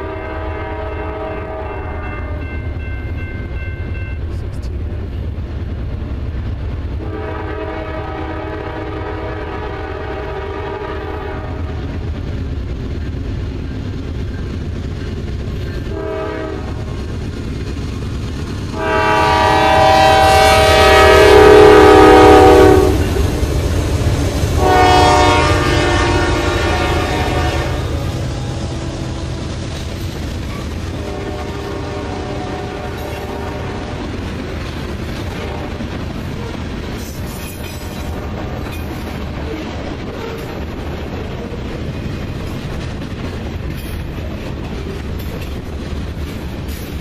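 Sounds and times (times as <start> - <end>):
locomotive air horn blasts: 0.0 - 2.5, 7.0 - 11.8, 15.9 - 16.9, 18.8 - 23.2, 24.5 - 29.5, 31.0 - 34.0
train wheels clattering over rail joints: 11.8 - 25.4, 29.6 - 32.0, 32.6 - 47.0.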